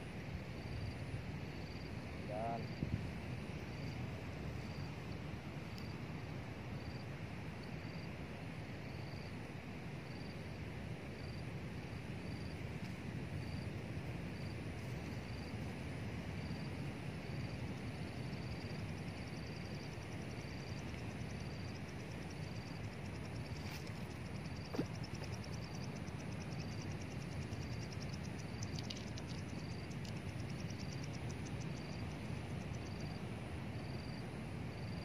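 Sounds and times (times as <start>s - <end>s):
high pulsing insect trill: 0.0s - 35.0s
insects chirping: 0.0s - 35.0s.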